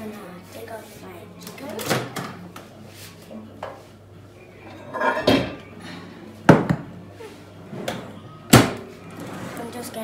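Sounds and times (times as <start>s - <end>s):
dish knocking on countertop: 6.5s - 6.9s.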